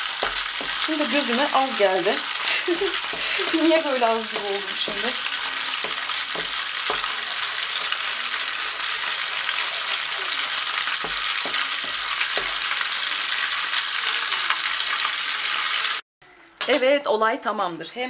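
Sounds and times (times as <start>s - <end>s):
spoon scraping frying pan: 0.0s - 13.5s
frying sizzle: 0.0s - 16.0s
spoon knocking against pan: 0.1s - 0.9s, 4.3s - 8.1s, 10.8s - 12.8s.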